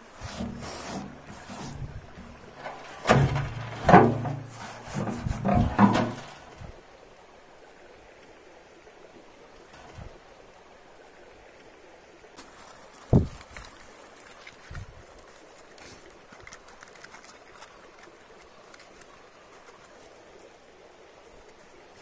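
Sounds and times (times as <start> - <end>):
rustling and scraping on twigs: 0.0 - 6.7, 12.4 - 22.0
faint steady hiss: 0.0 - 22.0.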